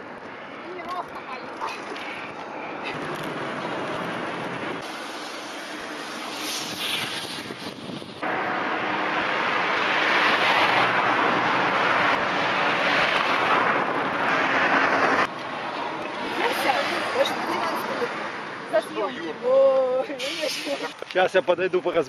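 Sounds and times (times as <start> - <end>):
road traffic passing: 0.0 - 22.0
wind rushing over microphone: 2.2 - 17.4.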